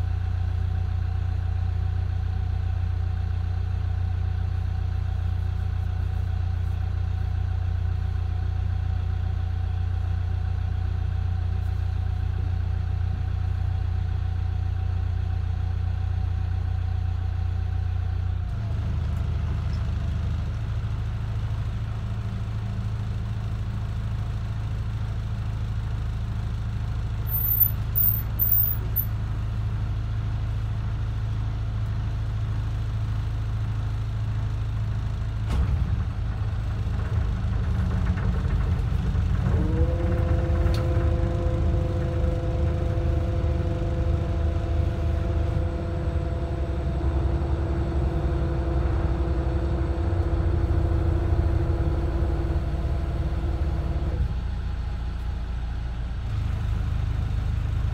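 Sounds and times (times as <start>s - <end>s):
boat engine low drone: 37.0s - 55.1s.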